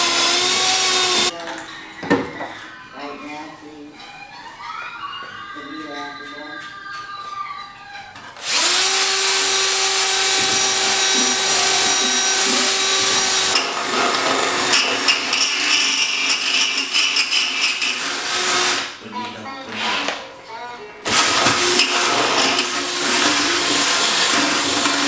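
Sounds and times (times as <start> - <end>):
cordless drill whining: 0.0 - 1.3, 8.4 - 19.0, 21.1 - 25.0.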